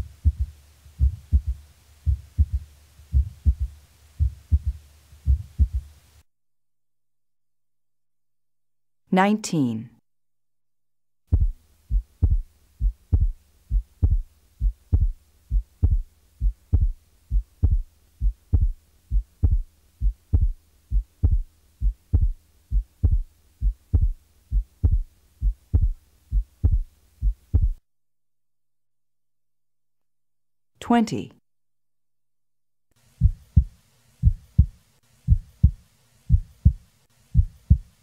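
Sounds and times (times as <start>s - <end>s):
heartbeat thumps: 0.0s - 5.9s, 11.3s - 27.8s, 33.2s - 38.0s
faint hum: 0.0s - 6.3s, 11.3s - 27.8s, 32.9s - 38.0s.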